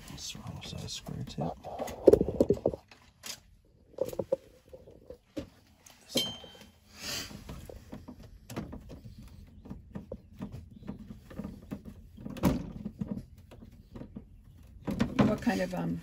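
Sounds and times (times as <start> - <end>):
sharp metallic clink: 6.1 - 6.7.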